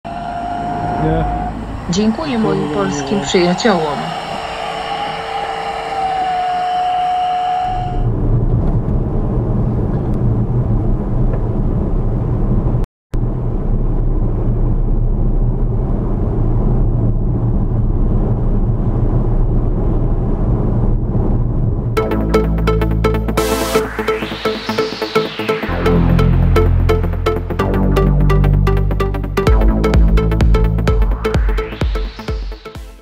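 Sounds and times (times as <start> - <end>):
car road and engine rumble: 0.0 - 22.0
electric air pump whine: 0.1 - 8.1.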